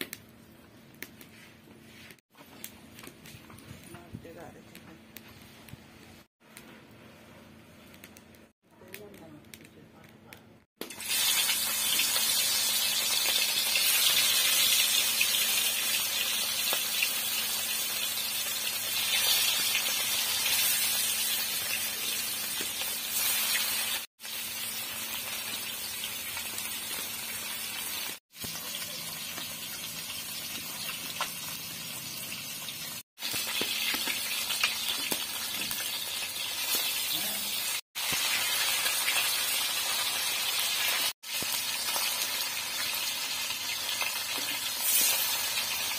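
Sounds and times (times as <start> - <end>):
fish sizzling in hot oil: 10.8 - 45.9.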